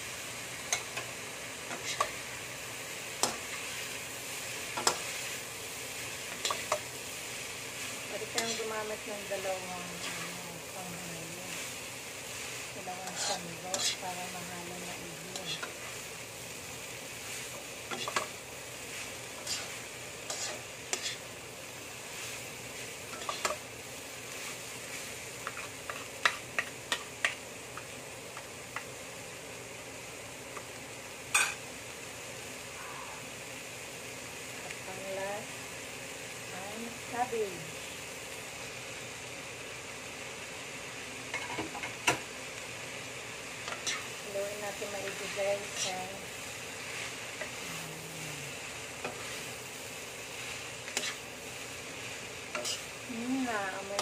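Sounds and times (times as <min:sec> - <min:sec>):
vegetables sizzling in a wok: 0:00.0 - 0:54.0
utensils scraping and clicking on pan: 0:01.7 - 0:02.2, 0:03.2 - 0:03.8, 0:04.7 - 0:05.3, 0:06.2 - 0:06.9, 0:09.9 - 0:10.4, 0:13.0 - 0:14.1, 0:15.3 - 0:15.9, 0:17.5 - 0:21.2, 0:23.1 - 0:23.6, 0:25.4 - 0:28.9, 0:43.6 - 0:46.1, 0:49.0 - 0:49.6, 0:50.4 - 0:51.3, 0:52.5 - 0:52.9, 0:53.6 - 0:54.0.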